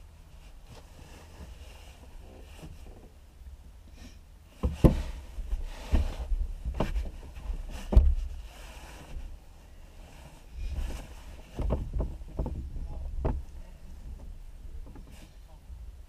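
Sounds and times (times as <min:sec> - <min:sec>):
low steady rumble: 0:00.0 - 0:16.0
dull knocks: 0:04.6 - 0:07.2, 0:07.8 - 0:08.3, 0:11.5 - 0:13.5.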